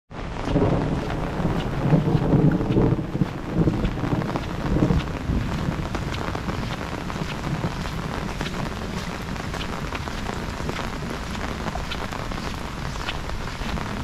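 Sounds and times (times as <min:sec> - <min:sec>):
heavy rain: 0:00.1 - 0:14.0
raindrops tapping close by: 0:00.1 - 0:14.0.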